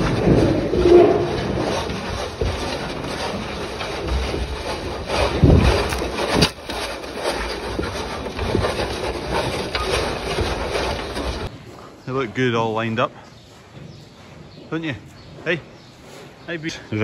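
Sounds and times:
cattle munching: 0.0 - 12.0.

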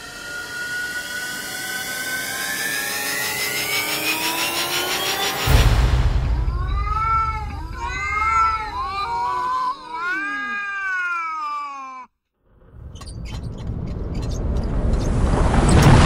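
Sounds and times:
rush of noise: 1.7 - 8.8, 14.4 - 16.0
cats meowing: 6.3 - 12.2.

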